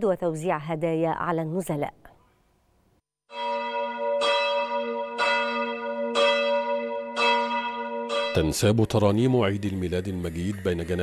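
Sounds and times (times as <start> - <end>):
church bell tolling: 3.3 - 9.6.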